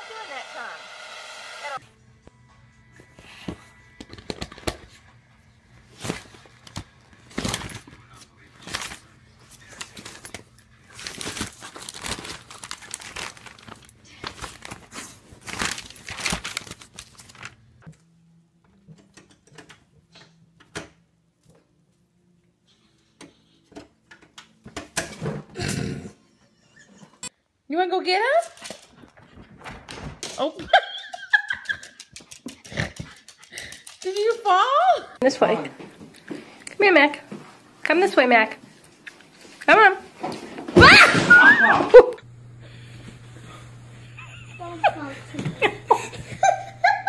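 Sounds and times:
paper crinkling and tearing: 0:05.9 - 0:17.7.

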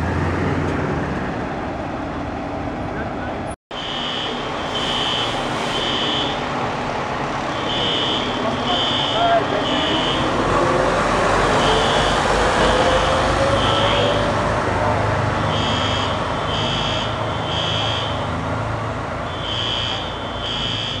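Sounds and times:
diesel engine accelerating: 0:00.0 - 0:03.6, 0:05.3 - 0:21.0
high electronic beeps: 0:19.3 - 0:21.0.

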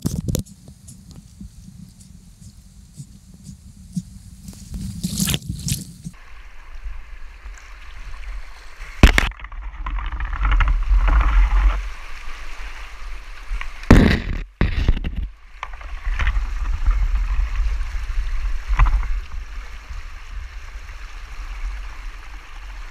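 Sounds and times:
floodwater churning and gurgling: 0:05.1 - 0:22.9.

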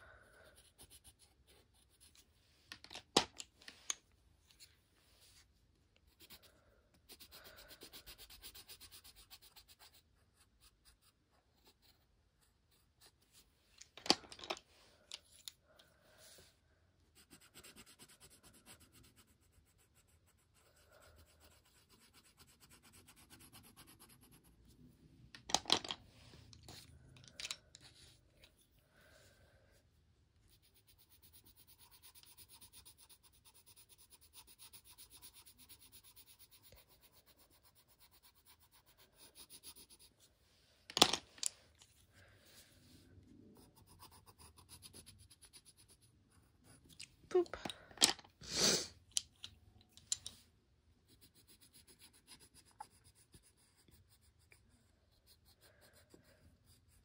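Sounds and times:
colored pencil scratching on paper: 0:00.2 - 0:02.4, 0:04.5 - 0:13.6, 0:16.1 - 0:24.9, 0:30.4 - 0:40.3, 0:42.5 - 0:47.4, 0:51.0 - 0:57.0.

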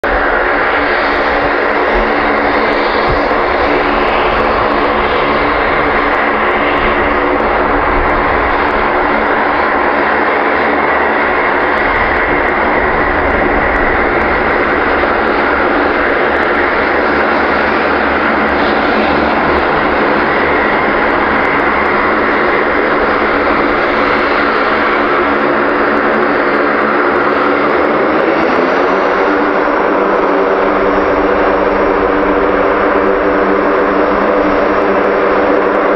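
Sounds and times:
turboprop propeller drone: 0:00.0 - 0:35.9.

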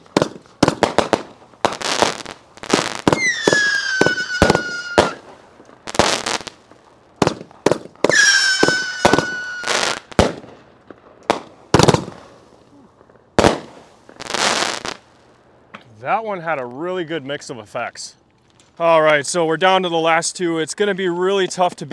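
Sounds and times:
firework bangs: 0:00.0 - 0:15.3
firework whistles falling in pitch: 0:02.7 - 0:05.2, 0:08.1 - 0:10.1.

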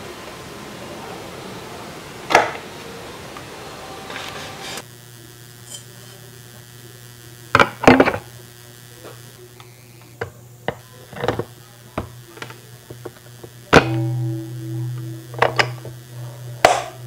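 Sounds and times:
sharp knock with ringing: 0:13.8 - 0:17.0.

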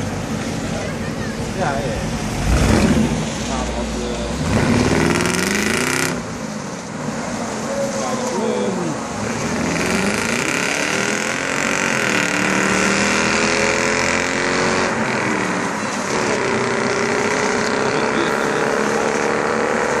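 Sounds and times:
car engine accelerating through gears: 0:02.2 - 0:06.3, 0:09.2 - 0:20.0.

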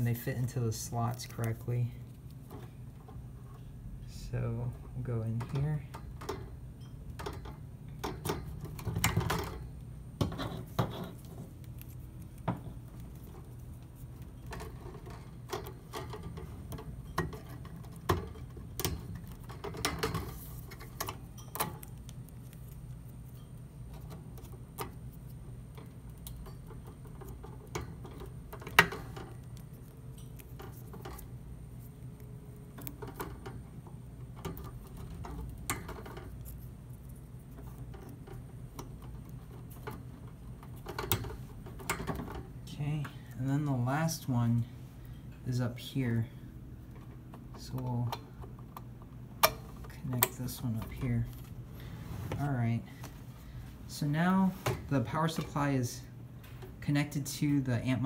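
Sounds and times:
steady low hum: 0:00.0 - 0:58.0
cables rustling and knocking: 0:05.2 - 0:44.4.

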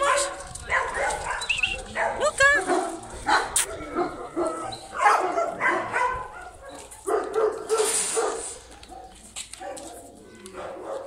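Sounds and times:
dogs barking: 0:00.0 - 0:11.0.

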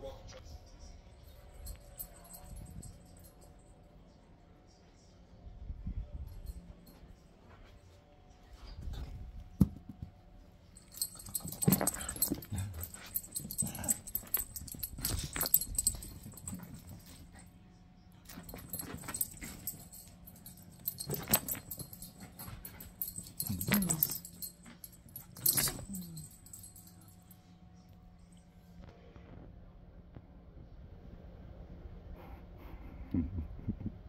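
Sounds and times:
high jingling: 0:01.2 - 0:03.7, 0:10.7 - 0:17.5, 0:18.3 - 0:27.4.

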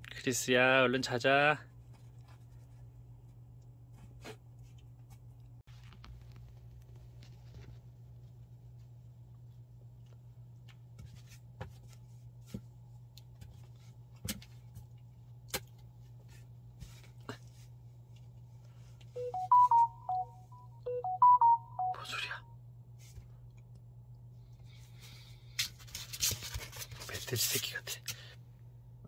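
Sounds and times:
low steady hum: 0:00.0 - 0:29.0
electronic beeping jingle: 0:19.2 - 0:22.4.

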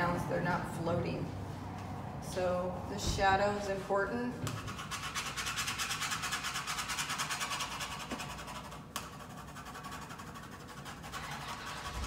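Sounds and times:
pencil scratching on paper: 0:04.5 - 0:12.0.

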